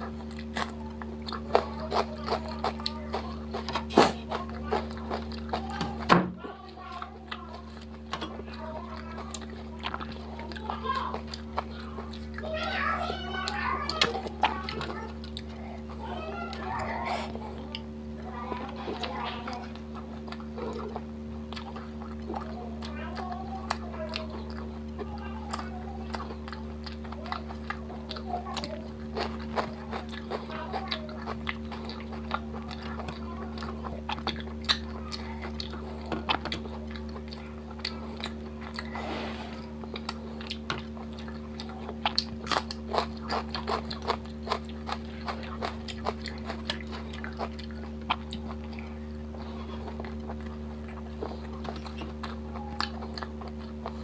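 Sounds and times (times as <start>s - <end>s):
steady low hum: 0.0s - 54.0s
wet chewing and smacking: 0.0s - 54.0s.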